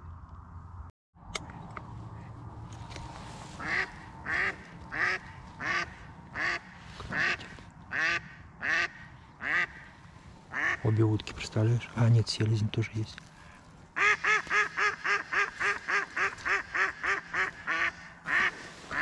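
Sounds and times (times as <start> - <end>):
duck quacking: 3.6 - 9.8, 14.0 - 19.0.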